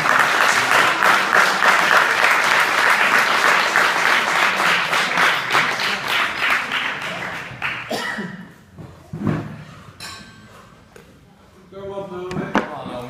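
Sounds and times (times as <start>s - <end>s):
audience applause: 0.0s - 7.9s.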